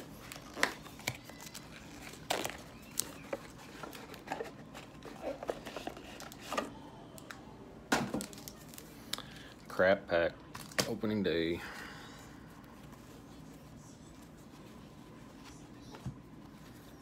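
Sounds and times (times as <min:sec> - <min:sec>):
wrapper crinkling: 0:00.1 - 0:06.5.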